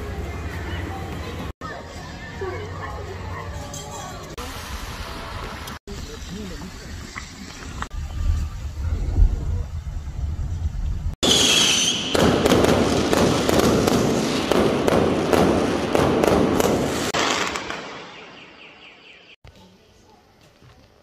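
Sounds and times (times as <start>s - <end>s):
firework whistle: 11.2s - 12.6s
fireworks crackling and popping: 11.2s - 18.4s.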